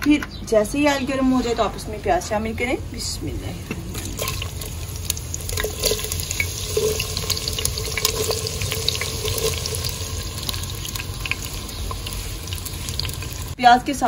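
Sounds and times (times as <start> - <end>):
onions sizzling in hot oil: 3.9 - 13.6.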